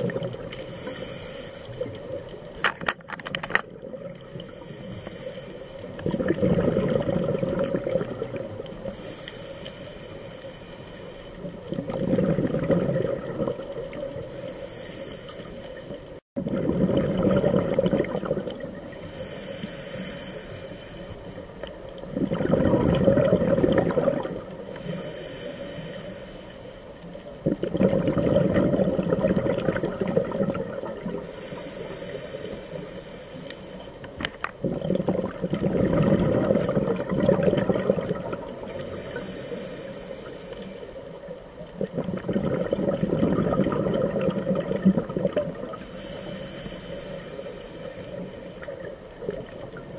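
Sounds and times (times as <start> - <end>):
exhaled bubbles rushing underwater: 0.0 - 0.9, 3.6 - 4.8, 5.8 - 9.2, 11.3 - 14.4, 15.8 - 19.3, 21.6 - 25.0, 27.0 - 31.6, 34.6 - 39.2, 41.1 - 46.2
hissing inhale through regulator: 0.5 - 2.4, 4.2 - 6.2, 7.3 - 11.8, 13.6 - 16.2, 18.7 - 22.3, 24.3 - 27.4, 30.8 - 34.6, 37.9 - 41.8, 45.6 - 49.7.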